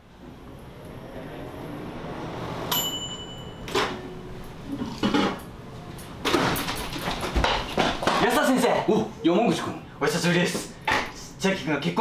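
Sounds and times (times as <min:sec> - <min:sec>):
knocks and rustling: 0:06.2 - 0:08.3.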